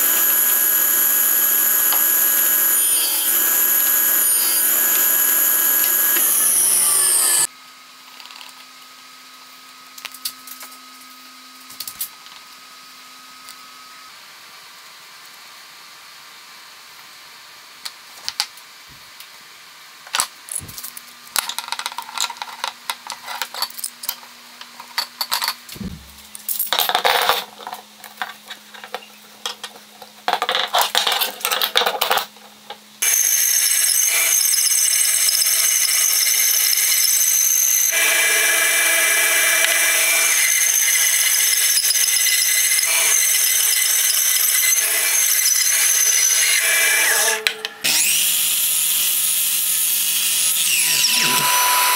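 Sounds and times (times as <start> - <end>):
bandsaw cutting wood: 0.0 - 7.5, 33.0 - 51.9.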